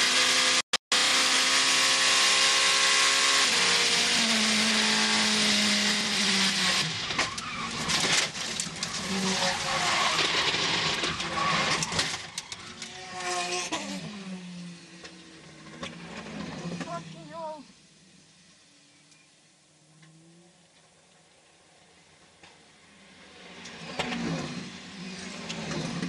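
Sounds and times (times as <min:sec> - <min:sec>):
race car engine at speed: 0:00.0 - 0:17.2, 0:22.1 - 0:26.0
tyres skidding: 0:03.1 - 0:17.4
car crash knocks and scrapes: 0:07.0 - 0:12.7.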